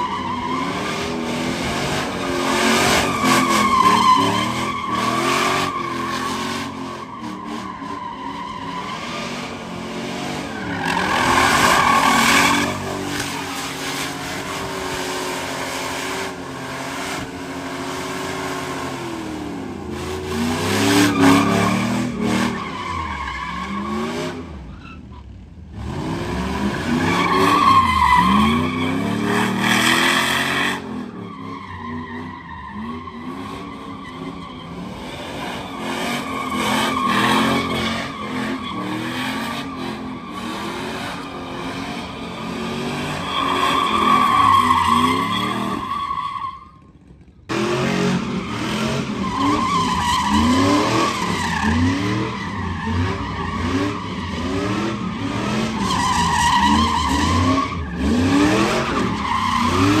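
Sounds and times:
truck engine revving: 0.0s - 24.7s
tyres squealing: 42.8s - 46.9s.

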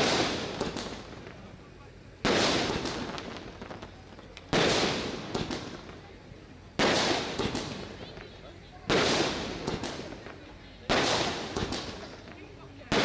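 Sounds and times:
loud sharp bangs: 0.0s - 1.5s, 2.2s - 3.8s, 4.5s - 6.0s, 6.8s - 8.0s, 8.9s - 12.3s.

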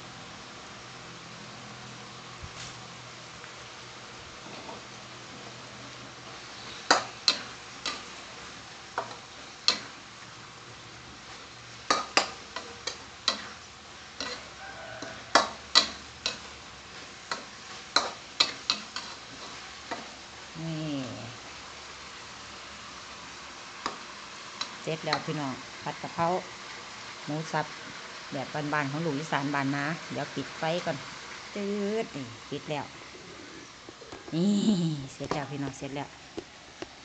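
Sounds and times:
steady sizzle: 0.0s - 37.0s
metal spatula clanking on wok: 15.3s - 16.5s.

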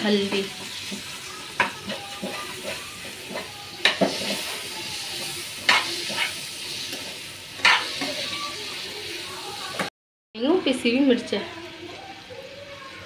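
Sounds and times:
chicken sizzling in pan: 0.0s - 13.0s
metal spoon clacking on pan: 0.3s - 4.5s, 5.6s - 8.2s.

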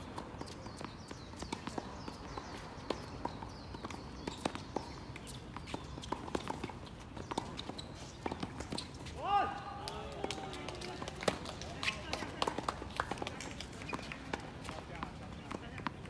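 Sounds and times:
faint shoe squeaks: 0.4s - 9.2s.

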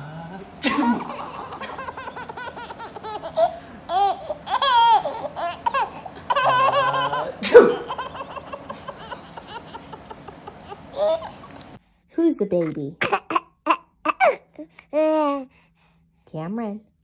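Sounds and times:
baby laughing and squealing: 1.0s - 11.5s.

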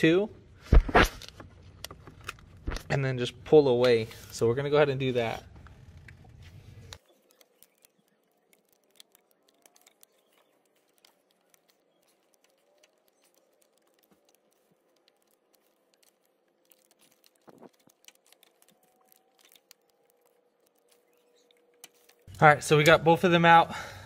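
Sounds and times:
plastic connectors clicking: 5.5s - 22.4s.

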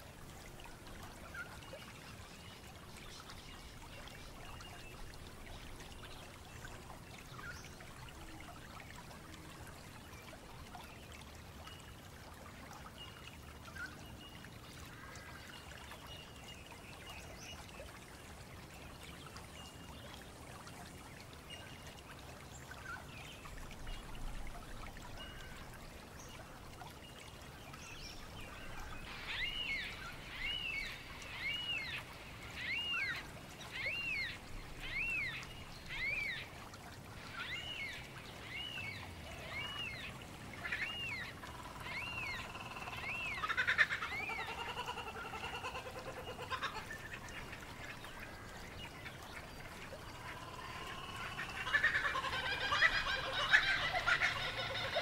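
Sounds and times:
wild birds calling: 39.3s - 49.2s, 50.0s - 55.0s.

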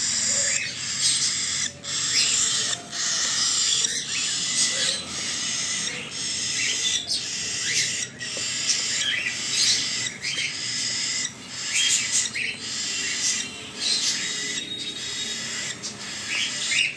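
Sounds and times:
bird chick begging calls: 0.0s - 16.9s.

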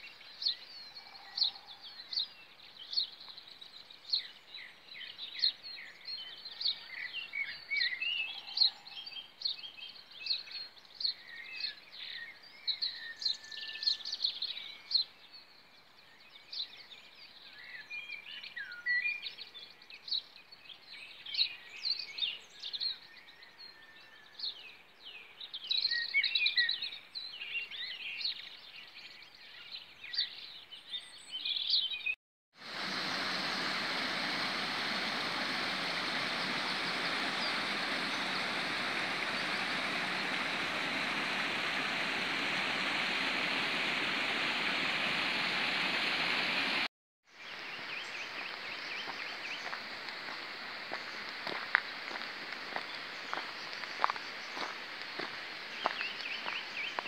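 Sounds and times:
birds chirping and trilling: 0.1s - 3.2s, 32.9s - 46.8s, 51.5s - 57.0s.

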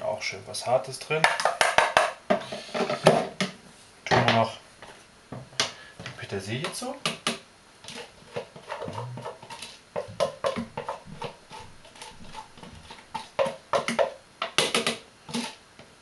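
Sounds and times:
taps and knocks on plastic bowl: 1.2s - 2.2s, 13.4s - 15.0s.

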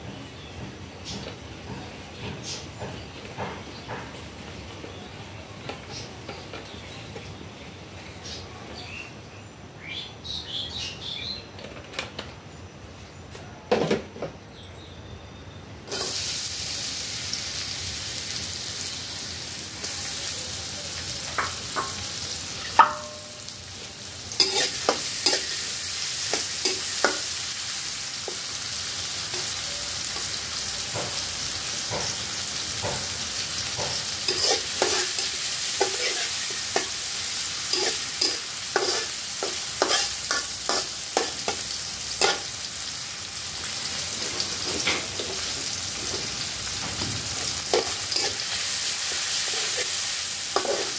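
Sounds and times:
onions sizzling in a wok: 15.8s - 50.9s
metal spatula scraping a wok: 15.9s - 16.3s, 24.4s - 27.4s, 33.9s - 42.6s, 47.5s - 50.9s.

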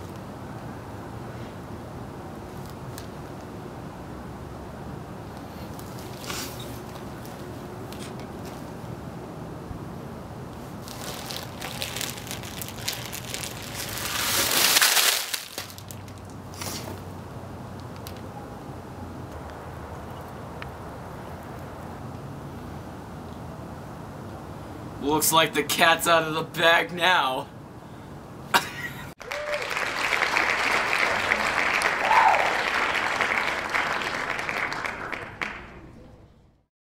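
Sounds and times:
brief rustle: 5.8s - 7.1s
plastic pouches crinkling in bag: 10.8s - 16.4s
crowd applauding: 29.2s - 35.9s.

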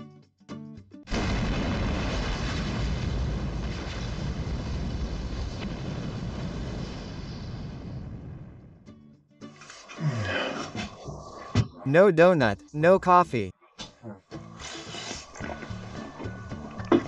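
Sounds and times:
loud fiery explosion: 1.1s - 8.8s.

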